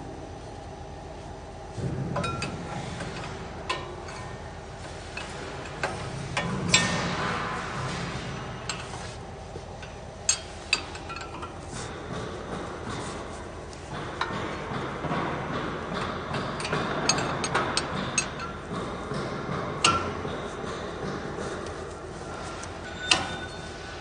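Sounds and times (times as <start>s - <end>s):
spanner clinking on metal: 9.8s - 11.6s, 16.0s - 18.8s.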